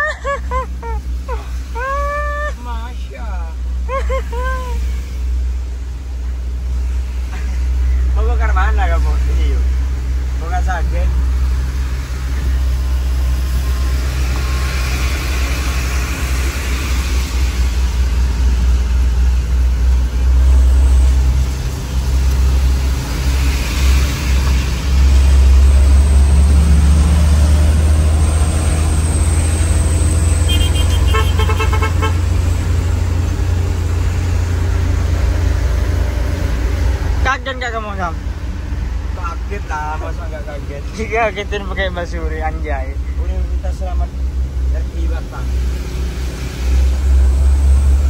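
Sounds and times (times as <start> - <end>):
truck engine drone: 0.0 - 48.0
tyre hiss on wet road: 20.9 - 26.0
horn pulses: 30.4 - 32.4.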